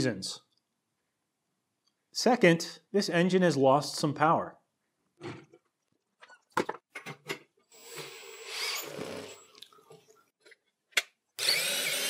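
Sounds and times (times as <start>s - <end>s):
cordless drill spinning: 7.7s - 9.6s, 11.4s - 12.0s.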